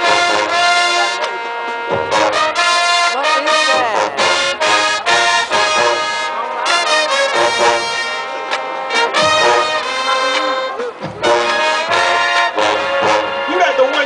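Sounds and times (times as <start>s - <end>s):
marching band playing: 0.0s - 14.0s
trombones and trumpets: 0.0s - 14.0s.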